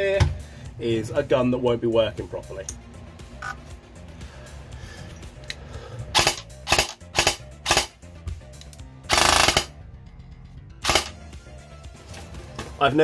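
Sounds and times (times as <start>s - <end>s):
airsoft rifle full-auto burst: 6.2s - 8.0s, 9.1s - 9.7s, 10.8s - 11.2s
airsoft rifle shots: 6.2s - 8.0s, 9.1s - 9.7s, 10.8s - 11.2s.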